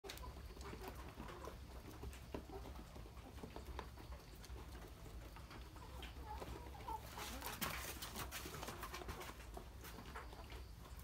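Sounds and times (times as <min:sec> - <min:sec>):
chickens pecking and scratching: 0:00.0 - 0:11.0.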